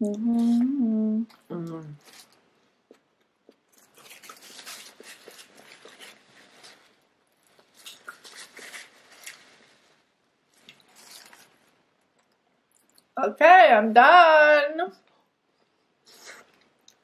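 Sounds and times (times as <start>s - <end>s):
chewing with wet mouth clicks: 12.0s - 13.2s.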